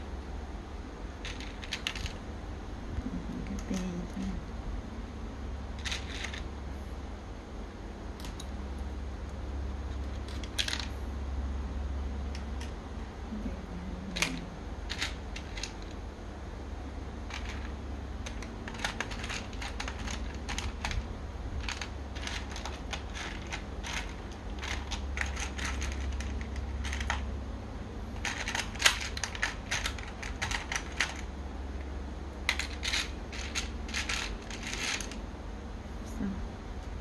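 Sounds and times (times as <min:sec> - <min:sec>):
steady low hum: 0:00.0 - 0:37.0
plastic toy parts clicking: 0:14.9 - 0:15.9, 0:17.3 - 0:21.0, 0:21.6 - 0:27.2, 0:28.2 - 0:31.2, 0:32.5 - 0:35.2.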